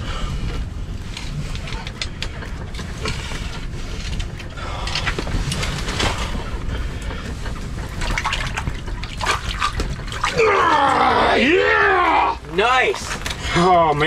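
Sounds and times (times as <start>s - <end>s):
steady low rumble: 0.0s - 14.0s
water splashing and dripping: 7.8s - 10.8s.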